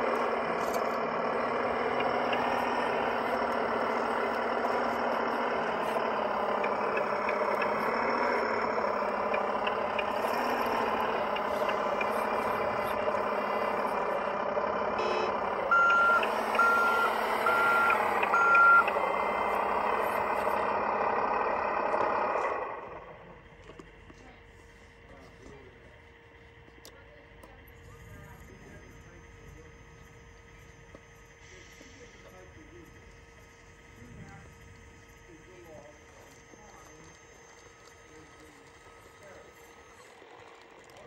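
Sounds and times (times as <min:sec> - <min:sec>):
simulated diesel engine: 0:00.0 - 0:41.0
reversing beeps: 0:15.0 - 0:19.0.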